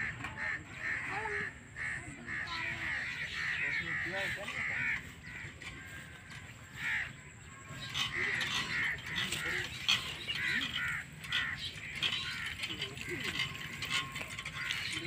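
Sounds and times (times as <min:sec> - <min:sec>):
crows cawing: 0:00.0 - 0:15.0
hand pump handle creaking: 0:03.4 - 0:15.0.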